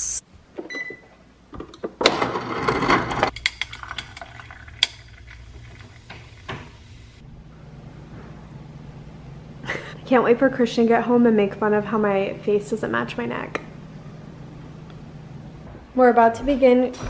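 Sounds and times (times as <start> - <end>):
ice rattling into a glass: 3.0 - 5.9
drink fizzing over ice: 3.4 - 6.8.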